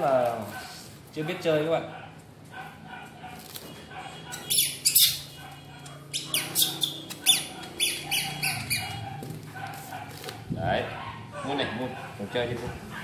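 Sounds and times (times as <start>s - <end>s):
baby monkey squeaking: 4.3s - 9.2s.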